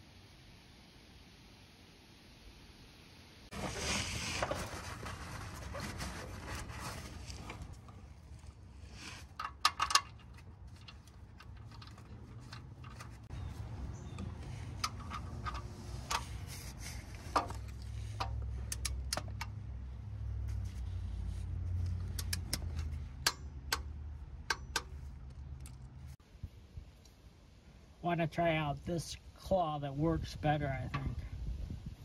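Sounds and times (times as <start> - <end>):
low steady rumble: 3.6 - 32.0
socket wrench clicking: 22.1 - 24.9.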